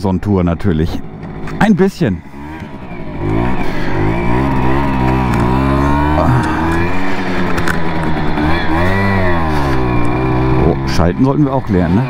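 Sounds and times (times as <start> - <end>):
moped engine revving: 0.2 - 12.0.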